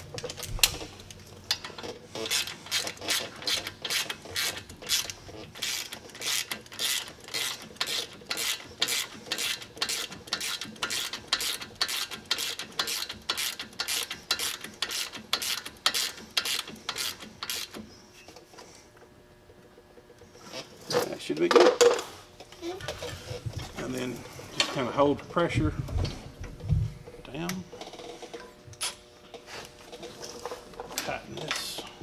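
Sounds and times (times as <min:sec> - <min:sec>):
hand ratchet clicking: 0:01.5 - 0:17.8.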